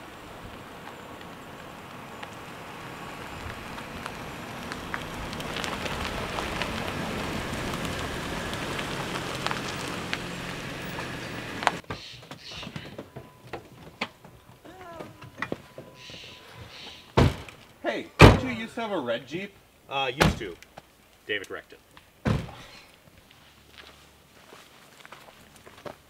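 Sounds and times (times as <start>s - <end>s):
low engine hum: 0.0s - 11.8s
tyres crackling on gravel: 0.0s - 26.0s.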